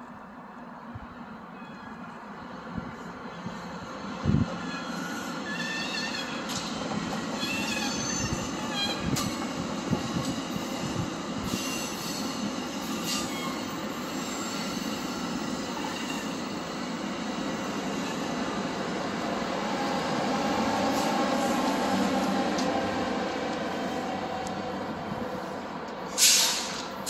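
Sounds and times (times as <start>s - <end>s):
train rumbling on rails: 0.0s - 27.0s
train wheels squealing: 1.5s - 2.2s, 4.5s - 9.5s, 10.1s - 18.9s.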